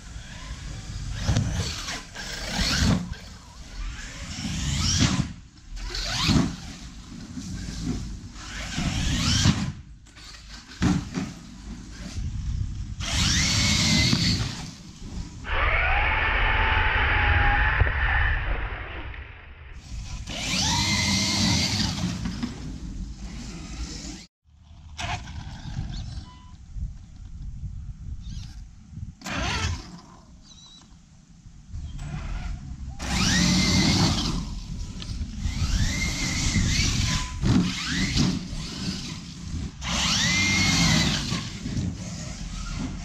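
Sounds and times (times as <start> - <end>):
rc truck motor whining: 0.0 - 10.8, 11.8 - 15.6, 19.8 - 24.3, 28.2 - 30.9, 31.9 - 43.0.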